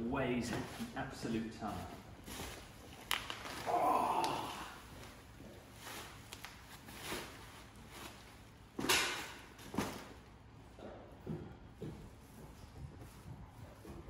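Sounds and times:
plastic wrap rustling: 0.4 - 10.3
footsteps: 10.8 - 14.0.

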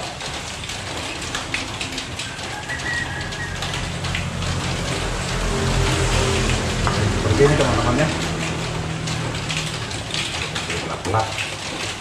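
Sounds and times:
low hum: 3.8 - 10.1.

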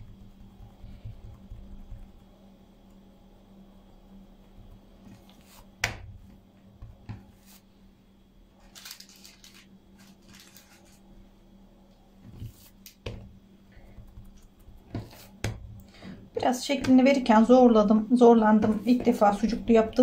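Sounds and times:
dough pressed by hand: 0.0 - 3.1, 4.7 - 7.5, 12.2 - 17.3
faint steady hum: 0.0 - 20.0.

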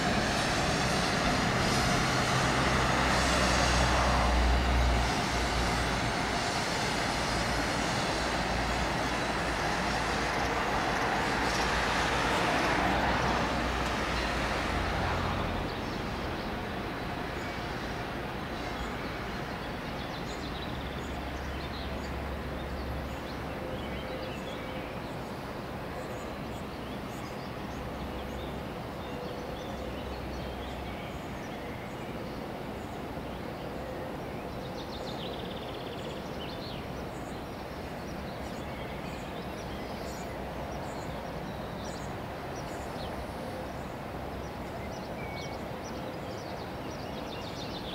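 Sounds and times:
train low rumble: 0.0 - 23.7
outdoor background noise: 0.0 - 47.9.

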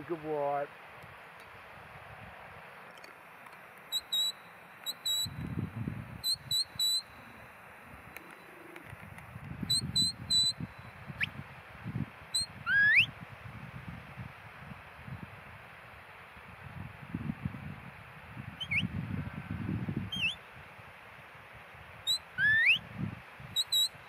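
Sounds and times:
shepherd's whistle blasts: 3.9 - 5.4, 6.2 - 7.2, 9.7 - 10.6, 12.4 - 13.1, 18.6 - 18.9, 20.1 - 20.4, 22.0 - 22.8, 23.6 - 24.0.

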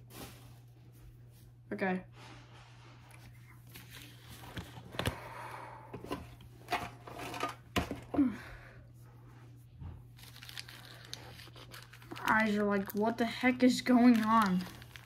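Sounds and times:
trading cards handled: 3.6 - 5.2.

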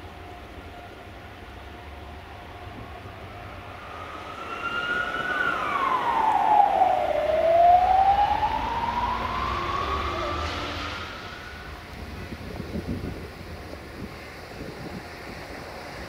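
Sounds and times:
emergency vehicle siren wailing: 2.2 - 12.6.

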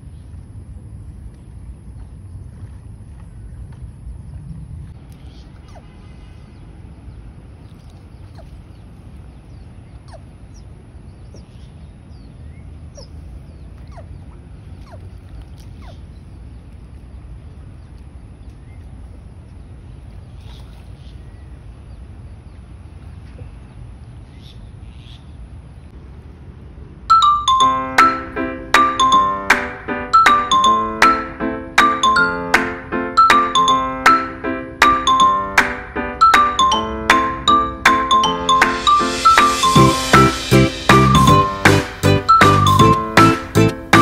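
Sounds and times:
wind rumbling on microphone: 0.0 - 27.1
marimba-like music: 27.1 - 44.0.

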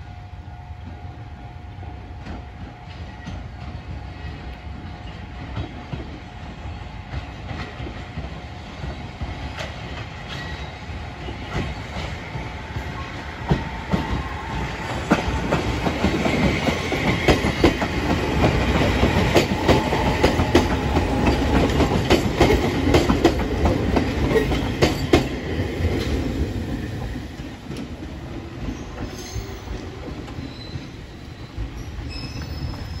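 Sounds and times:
electric train passing: 0.0 - 33.0.

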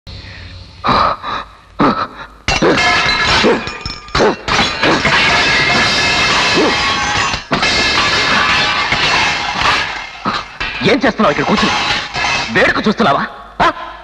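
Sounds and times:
glass crashing and shattering: 2.5 - 13.0
music: 4.8 - 13.1.

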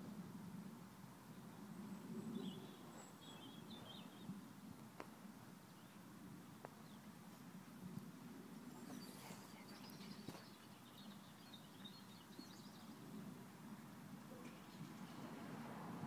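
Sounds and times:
bird chirping: 1.9 - 4.4, 8.6 - 13.1.

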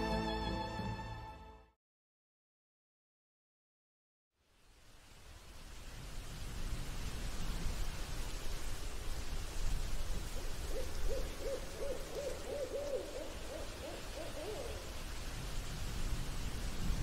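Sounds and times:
steady low hiss: 4.4 - 17.0
owl hooting: 10.4 - 15.0.

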